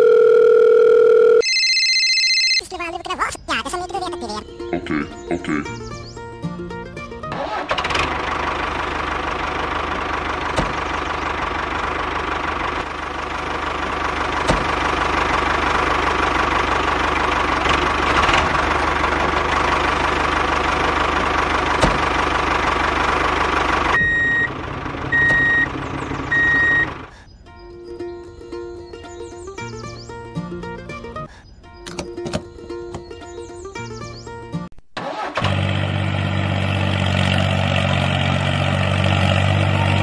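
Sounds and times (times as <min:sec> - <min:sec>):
tractor engine idling: 0:07.4 - 0:27.2.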